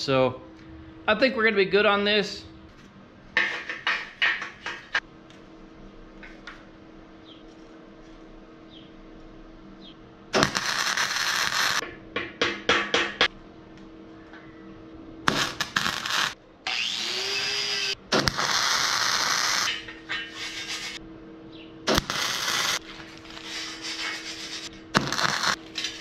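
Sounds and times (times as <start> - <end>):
welding arc crackling: 10.3 - 11.9, 15.2 - 21.0, 21.9 - 26.0.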